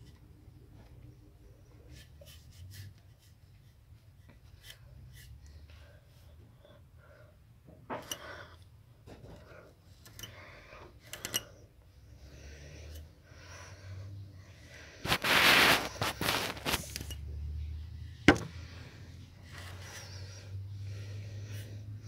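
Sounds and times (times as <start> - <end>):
bedding rustling: 15.1 - 17.0.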